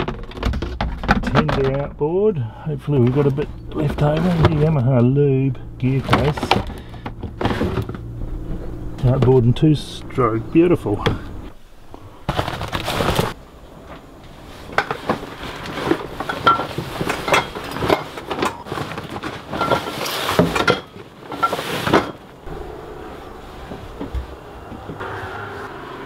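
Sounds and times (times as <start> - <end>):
nylon bag rustling and scraping: 2.8 - 5.0, 5.8 - 8.9, 12.0 - 13.4, 14.1 - 25.6
bag bumping hatch: 5.7 - 8.2.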